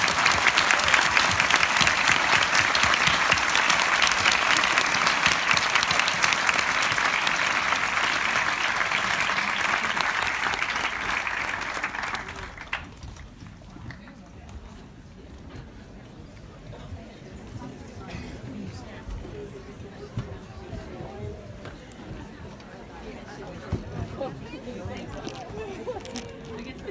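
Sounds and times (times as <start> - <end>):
audience applauding: 0.0 - 13.3.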